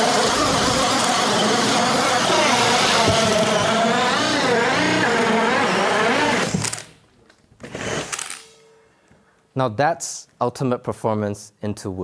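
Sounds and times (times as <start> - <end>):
cordless drills whining under load: 0.0 - 7.0, 7.6 - 8.7.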